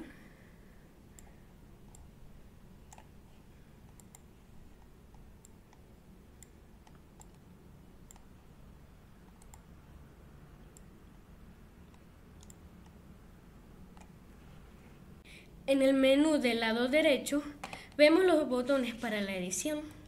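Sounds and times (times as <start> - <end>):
low steady background hum: 0.0 - 20.0
computer mouse clicking: 1.2 - 2.1, 2.8 - 3.2, 3.8 - 8.3, 9.2 - 9.7, 10.7 - 10.9, 11.9 - 13.0, 13.9 - 14.2.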